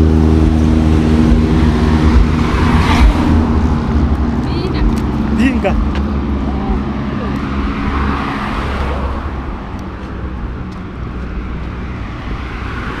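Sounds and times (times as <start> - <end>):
vehicle engine running: 0.0 - 8.3
road noise: 0.0 - 13.0.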